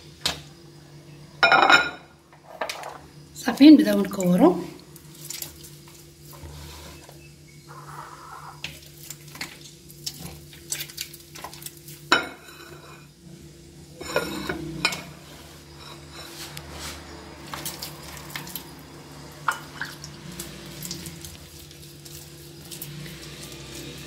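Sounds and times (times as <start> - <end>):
dough squelching: 3.4 - 12.1, 19.6 - 24.0.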